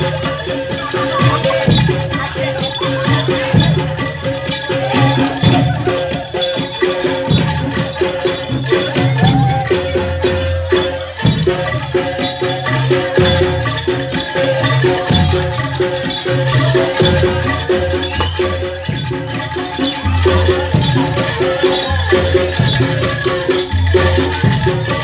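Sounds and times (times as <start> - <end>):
drums: 0.0 - 25.0
shaken bells jingling: 0.0 - 25.0
held tone: 16.8 - 22.6.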